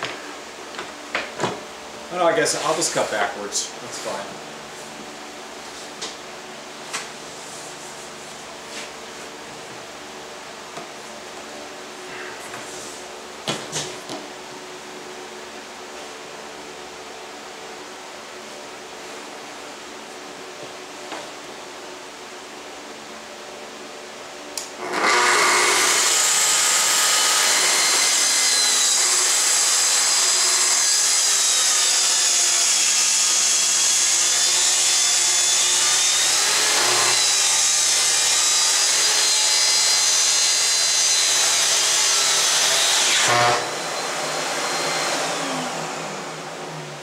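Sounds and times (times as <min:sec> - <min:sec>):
circular saw cutting plywood: 0:24.8 - 0:46.8.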